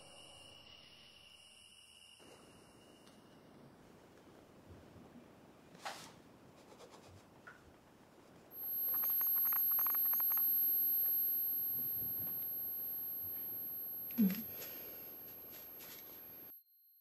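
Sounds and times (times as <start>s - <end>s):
high-pitched ringing tone: 0.0s - 3.6s, 8.5s - 17.0s
faint lower tone: 8.6s - 17.0s.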